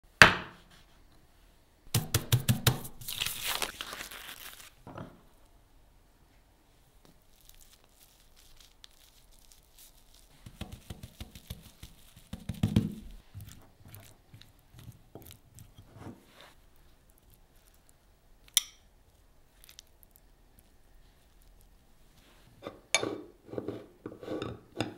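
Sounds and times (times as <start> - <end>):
nori sheet crinkling: 2.8 - 4.8, 7.1 - 12.3
hands spreading sticky rice: 7.1 - 17.9.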